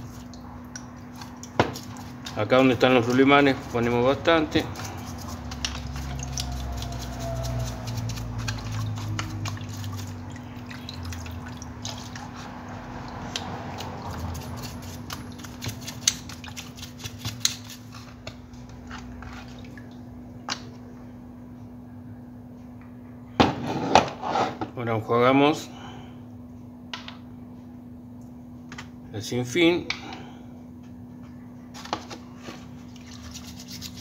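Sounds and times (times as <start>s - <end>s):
liquid splashing and dripping: 0.0s - 3.8s, 4.5s - 17.8s, 19.2s - 20.1s.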